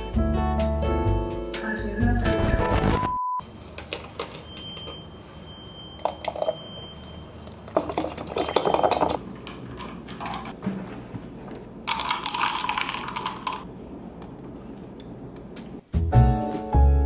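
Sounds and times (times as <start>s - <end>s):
ice clinking in glass jar: 6.0s - 6.8s, 7.7s - 9.2s, 11.9s - 13.6s.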